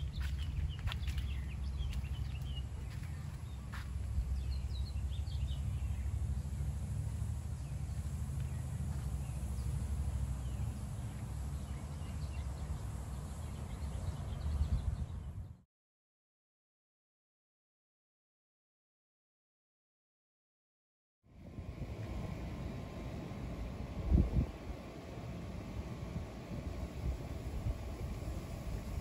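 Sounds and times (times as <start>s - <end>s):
small birds chirping: 0.0s - 15.6s
wind on microphone: 14.0s - 15.6s, 21.4s - 29.0s.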